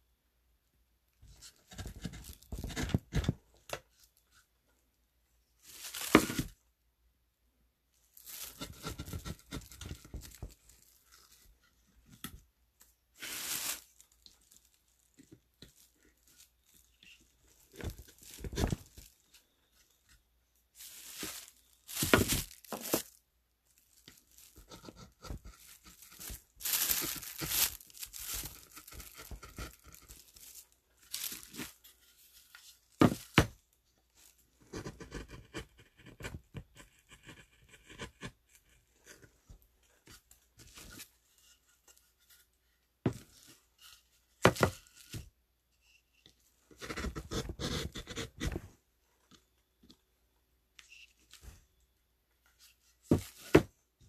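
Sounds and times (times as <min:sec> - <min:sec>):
paper rustling and crinkling: 0:05.6 - 0:06.6, 0:08.0 - 0:12.2, 0:13.2 - 0:19.9, 0:20.8 - 0:33.6.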